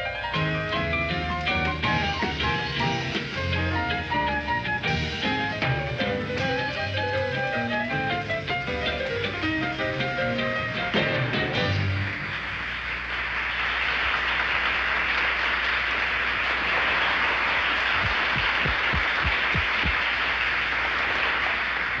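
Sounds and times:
audience applause: 11.6s - 22.0s
low thumps: 18.0s - 20.0s.

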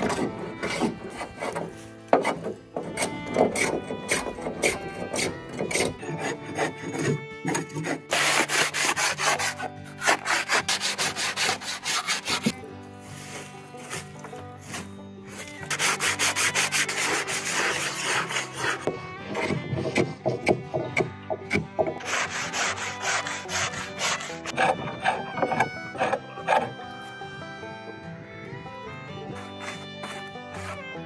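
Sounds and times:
sanding wood by hand: 0.0s - 26.7s, 29.3s - 30.8s.

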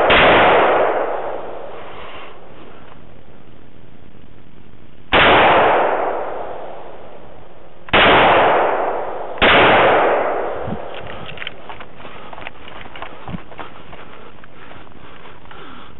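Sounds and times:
rifle shots: 0.0s - 1.8s, 5.1s - 12.0s.

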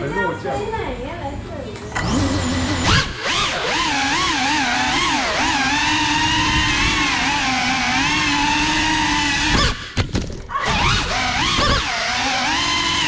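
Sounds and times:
drone motors whining: 1.8s - 13.0s.

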